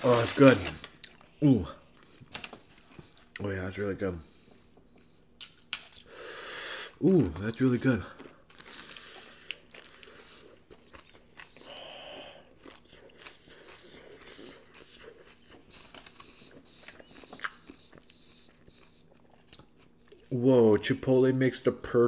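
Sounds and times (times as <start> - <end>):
chewing crispy food: 0.0 - 3.5, 7.0 - 20.9.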